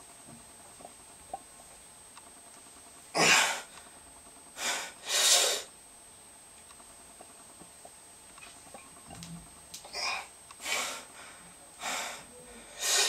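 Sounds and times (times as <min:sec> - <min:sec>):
man breathing forcefully: 0:04.6 - 0:05.7, 0:10.0 - 0:13.0.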